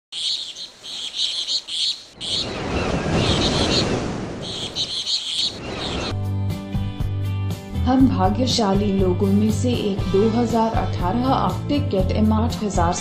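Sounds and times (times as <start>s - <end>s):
birds chirping: 0.1s - 6.2s.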